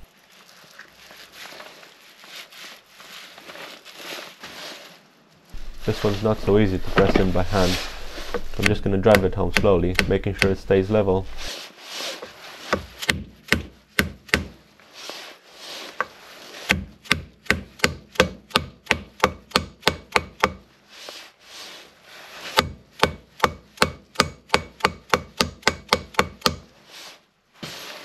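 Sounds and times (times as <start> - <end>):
hammer tapping seal driver: 8.6 - 10.6, 22.6 - 26.6.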